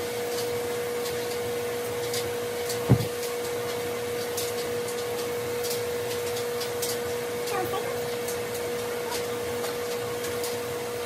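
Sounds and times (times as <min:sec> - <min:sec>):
electric motor hum: 0:02.8 - 0:03.2
short thump: 0:02.9 - 0:03.1.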